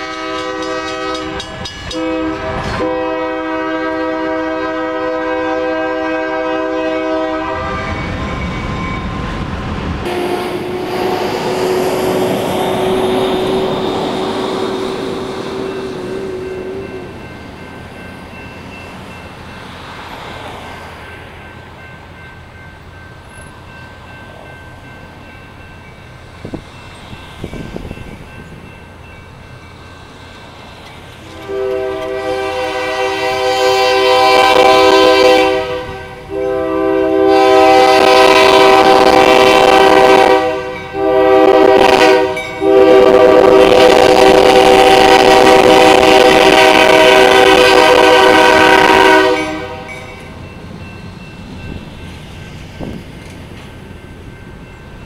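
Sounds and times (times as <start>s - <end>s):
locomotive air horn blasts: 0.0s - 8.1s, 10.0s - 17.2s, 31.2s - 50.0s
road traffic: 0.0s - 55.0s.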